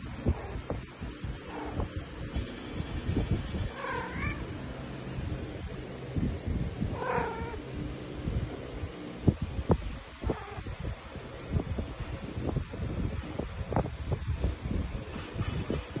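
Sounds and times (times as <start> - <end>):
cat meowing: 3.8 - 4.5, 6.9 - 7.6.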